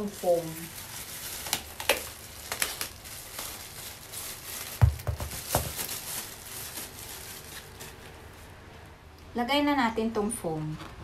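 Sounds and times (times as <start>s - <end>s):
plastic packaging crinkling: 0.0s - 8.6s
dull knocks: 4.8s - 5.8s.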